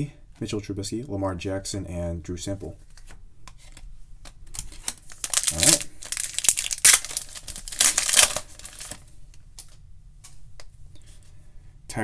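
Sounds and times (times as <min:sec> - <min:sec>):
foil wrapper crinkling: 0:04.5 - 0:09.8
foil ripping: 0:04.9 - 0:09.0.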